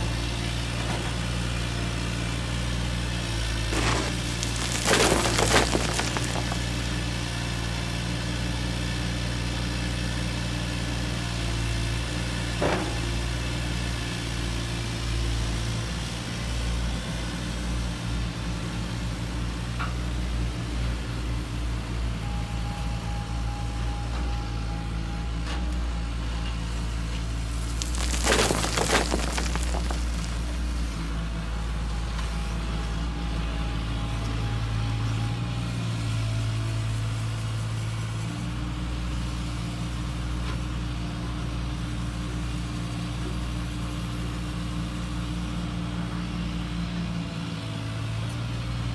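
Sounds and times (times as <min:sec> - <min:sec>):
stones rattling: 0:03.7 - 0:07.0, 0:27.5 - 0:30.6.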